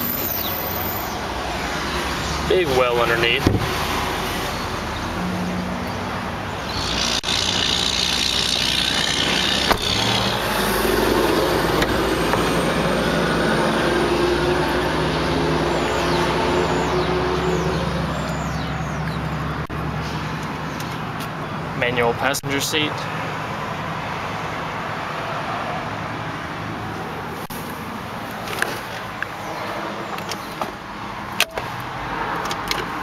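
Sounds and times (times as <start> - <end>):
vehicle engine humming: 0.0 - 21.7.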